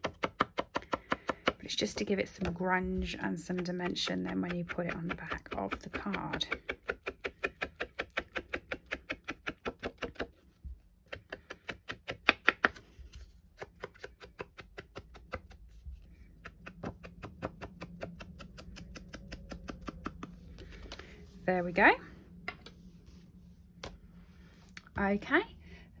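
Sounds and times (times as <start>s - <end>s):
sponge dauber tapping: 0.0s - 1.7s, 2.3s - 12.8s, 13.6s - 20.9s.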